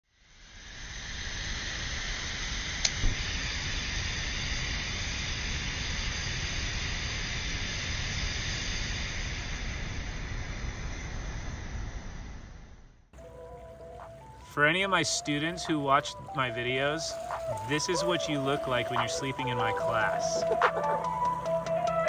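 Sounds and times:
gas stove burning hiss: 0.1 - 12.8, 13.8 - 22.0.

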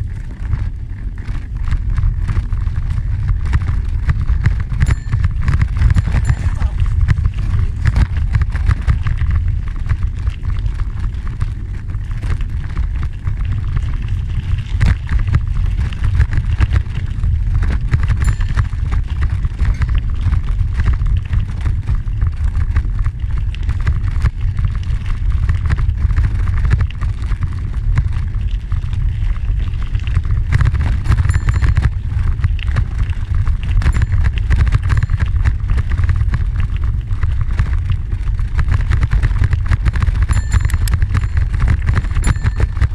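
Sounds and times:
tyres crackling on gravel: 0.0 - 42.9
wind rumbling on microphone: 0.0 - 42.9.

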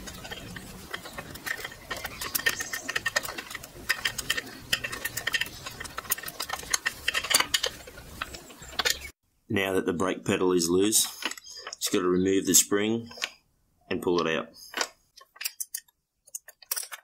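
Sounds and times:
small metallic clicks and rattles: 0.0 - 9.2, 14.2 - 17.0.

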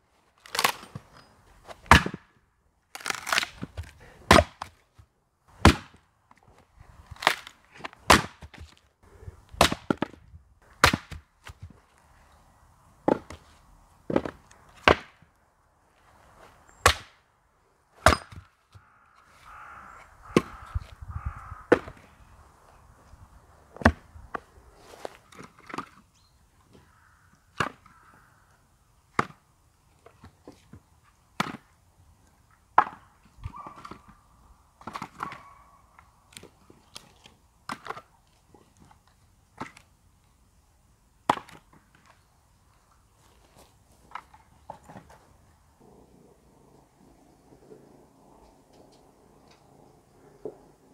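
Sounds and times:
axe chopping firewood: 1.7 - 2.4, 3.0 - 4.8, 5.6 - 6.0, 7.1 - 8.8, 9.5 - 11.8, 13.0 - 13.5, 14.1 - 15.2, 16.8 - 17.2, 18.0 - 18.6, 21.7 - 22.0, 23.7 - 24.4, 29.2 - 29.4, 31.4 - 31.7, 32.8 - 34.1, 41.2 - 42.0
split wood pieces knocking together: 7.1 - 8.8.

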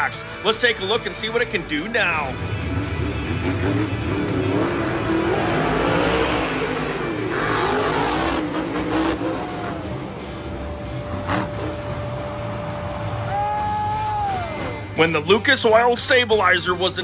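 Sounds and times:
monster truck engine revving: 2.2 - 13.6.

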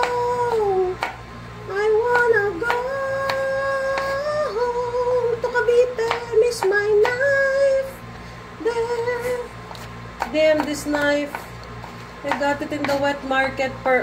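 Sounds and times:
knife tapping cutting board: 2.1 - 4.1, 12.3 - 13.2.

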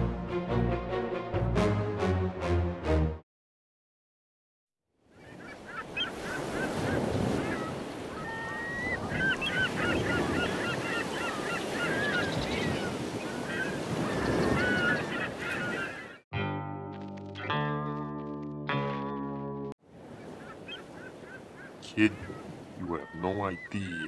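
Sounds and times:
waves washing: 5.8 - 16.1, 19.9 - 24.0.

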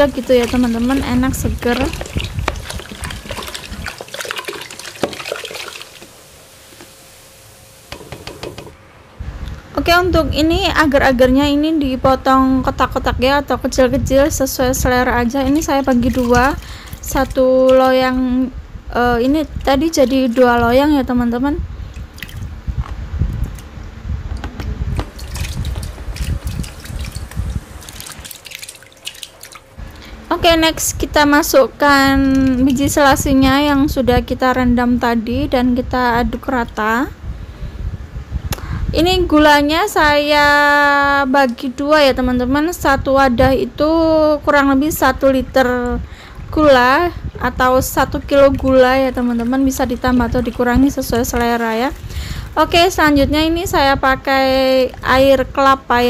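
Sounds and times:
soda pouring and fizzing: 0.0 - 8.0, 25.0 - 29.8.

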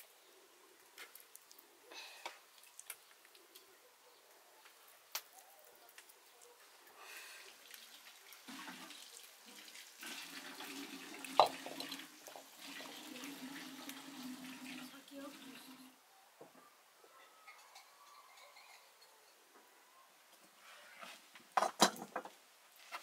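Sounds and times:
water pouring and splashing: 0.9 - 3.5, 6.9 - 15.9.

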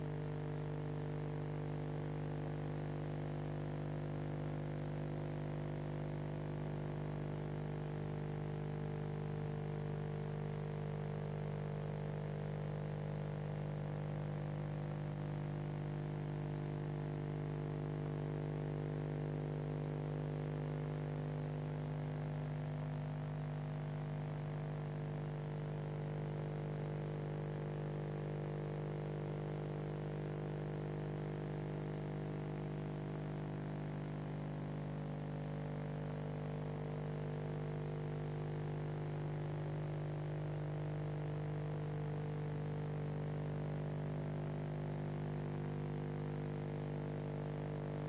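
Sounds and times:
electrical mains hum: 24.3 - 48.0.

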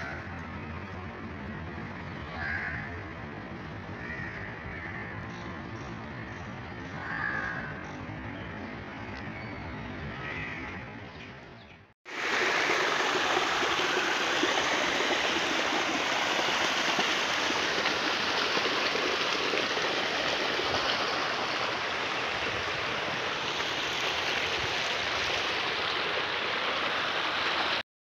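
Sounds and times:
water rushing down a ditch: 12.1 - 27.8.

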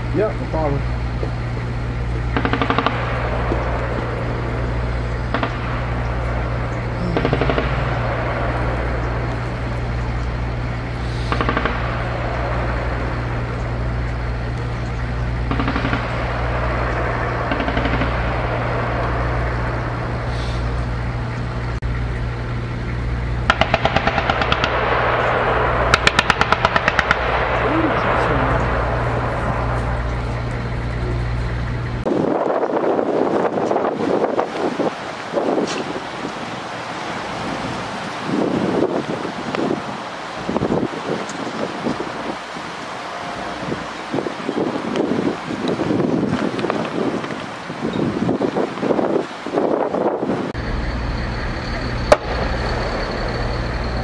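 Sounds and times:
steady low hum: 0.0 - 46.5, 50.5 - 54.0
machine gun bursts: 2.4 - 3.0.

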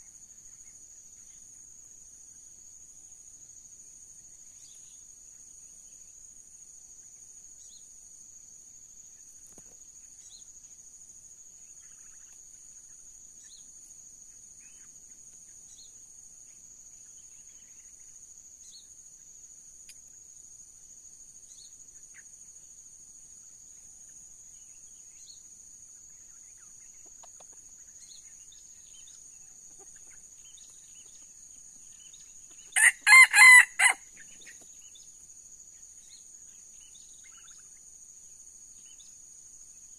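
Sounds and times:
faint high insect drone: 0.0 - 39.9
rooster crowing: 32.8 - 34.1.

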